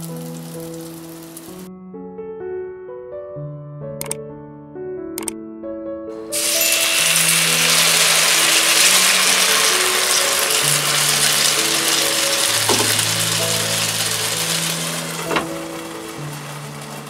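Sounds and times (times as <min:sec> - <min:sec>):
water sizzling in frying pan: 0:00.0 - 0:01.7, 0:06.2 - 0:17.0
quiet background music: 0:06.2 - 0:17.0.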